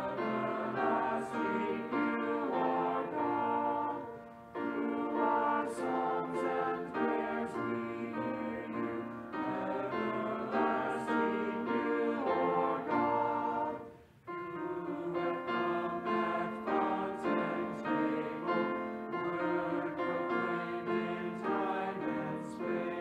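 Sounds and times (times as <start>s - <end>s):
church choir singing: 0.0s - 23.0s.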